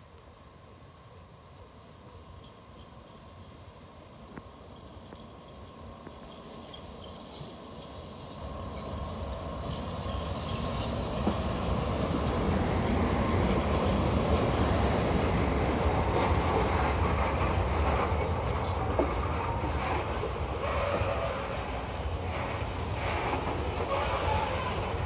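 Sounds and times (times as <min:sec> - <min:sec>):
train wheels rumbling on rails: 0:02.1 - 0:25.0
wheels clattering over rail joints: 0:06.2 - 0:14.6.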